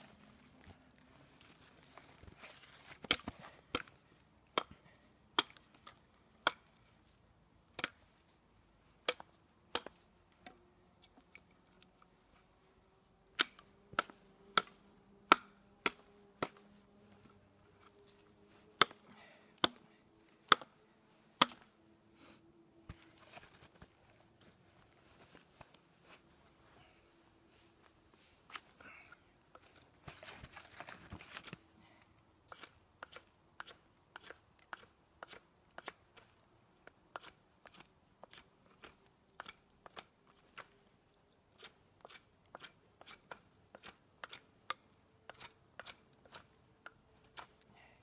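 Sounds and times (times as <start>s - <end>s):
twigs snapping: 13.3s - 16.6s.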